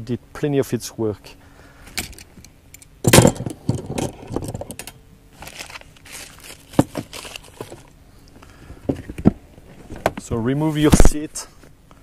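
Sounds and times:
plastic bag crinkling: 5.3 - 8.0
cardboard box rustling: 5.4 - 7.9.

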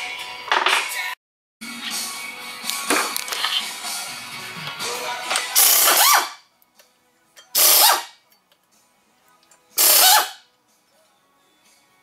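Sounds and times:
power tool bursts: 5.6 - 6.4, 7.6 - 8.1, 9.8 - 10.4.

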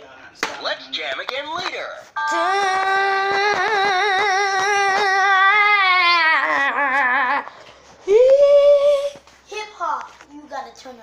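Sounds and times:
high voice singing with vibrato: 2.2 - 9.2.

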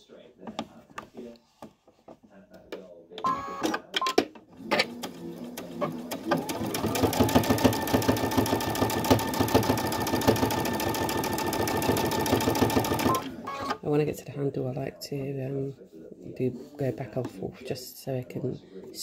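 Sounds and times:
sewing machine stitching: 4.6 - 13.8.

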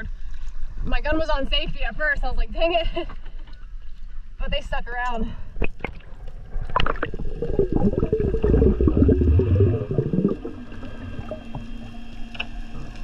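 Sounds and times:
steady low hum: 5.3 - 13.0
underwater gurgling and bubbles: 5.5 - 13.0.

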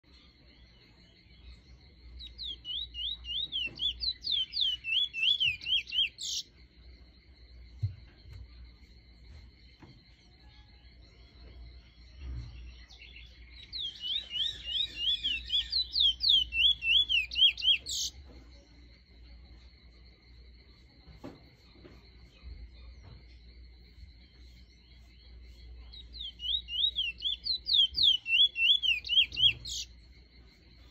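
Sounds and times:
bird singing whistled notes: 0.1 - 6.6, 10.3 - 18.2, 23.9 - 30.1.

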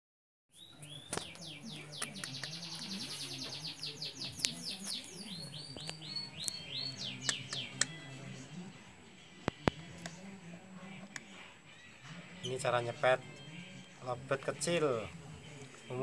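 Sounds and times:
bird chick chirping: 0.6 - 7.9.

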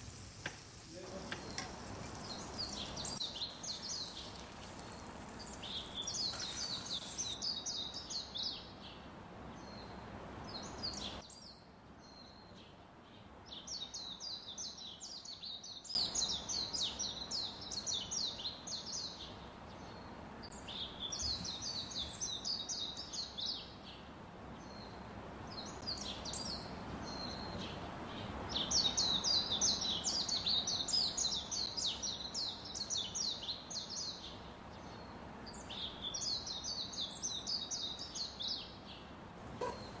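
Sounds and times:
birds chirping: 0.0 - 40.0
steady background hiss: 0.0 - 40.0.

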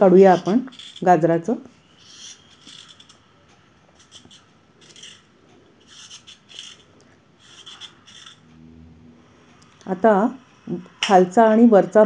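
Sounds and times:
peeler scraping a carrot: 0.1 - 3.2, 4.0 - 8.5.

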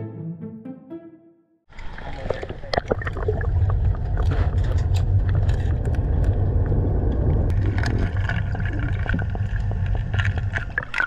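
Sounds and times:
low underwater rumble: 1.8 - 11.0
crackling clicks: 2.7 - 11.0.

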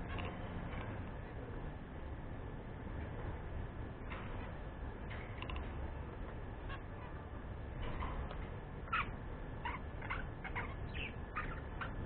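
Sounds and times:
budgerigars chirping: 8.8 - 12.0.

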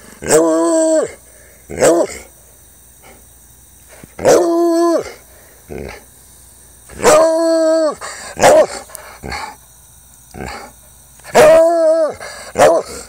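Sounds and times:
dog barking: 8.4 - 8.8, 12.6 - 13.0.

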